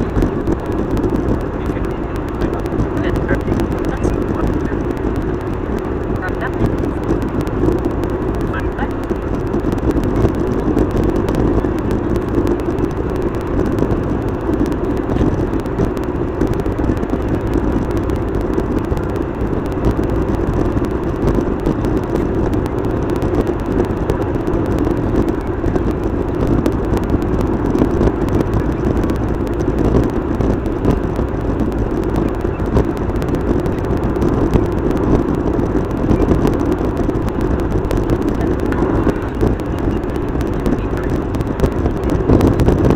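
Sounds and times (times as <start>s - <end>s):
car interior road noise: 0.0s - 42.9s.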